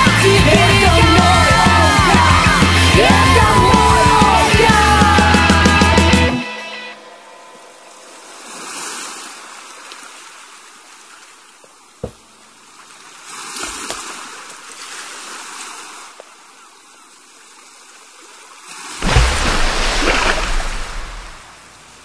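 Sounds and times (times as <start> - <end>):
waves on a pebble beach: 7.7 - 11.3, 12.9 - 22.0
sharp knock: 12.0 - 12.3.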